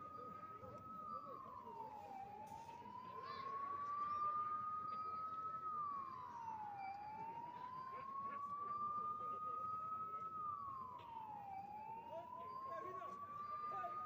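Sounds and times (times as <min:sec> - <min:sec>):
emergency siren wailing: 0:00.0 - 0:14.0.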